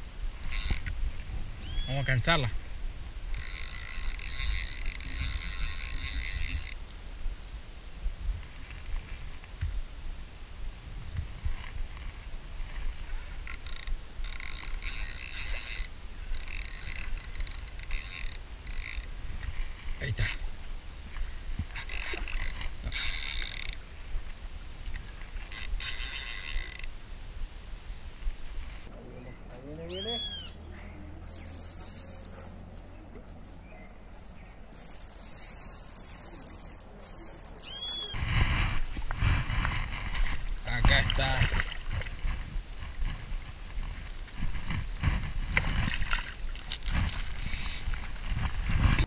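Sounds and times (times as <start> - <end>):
fishing reel ratcheting clicks: 0.4 - 0.9, 3.3 - 6.8, 13.4 - 19.1, 20.1 - 20.4, 21.7 - 23.8, 25.5 - 26.9, 31.2 - 32.5, 34.8 - 38.2
insects trilling: 3.3 - 6.8, 13.4 - 19.1, 31.2 - 32.5, 34.8 - 38.2
short arched insect call: 31.2 - 32.5, 34.7 - 38.2.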